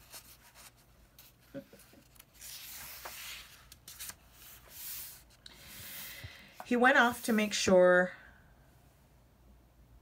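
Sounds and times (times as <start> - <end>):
paper page rustling: 0.0 - 7.3.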